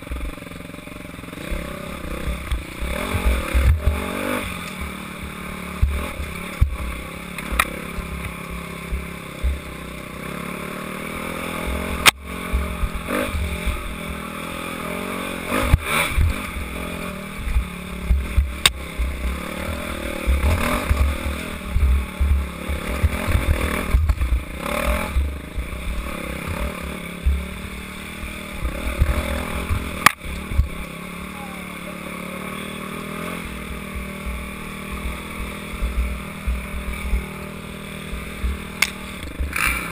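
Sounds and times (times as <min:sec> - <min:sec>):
dirt bike engine revving: 0:00.0 - 0:39.9
bike knocking over bumps: 0:04.8 - 0:08.4.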